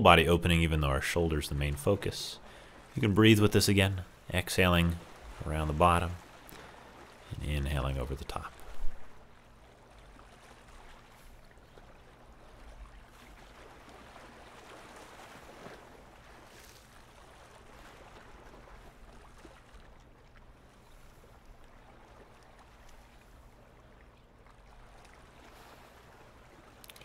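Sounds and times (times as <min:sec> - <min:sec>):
low steady hum: 0:00.0 - 0:27.0
lake waves lapping on stony shore: 0:00.8 - 0:27.0.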